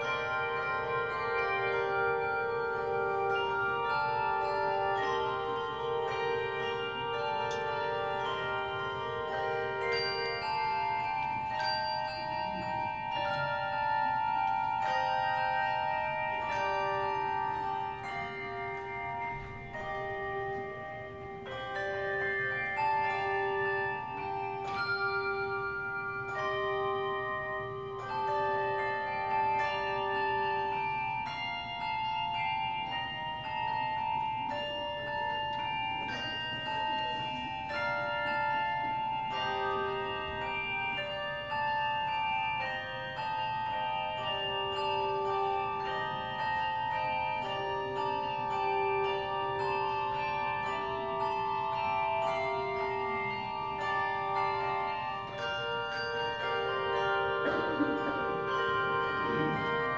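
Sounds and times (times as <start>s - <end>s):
handbell choir ringing: 0.0s - 59.9s
low bell note held: 59.2s - 59.9s.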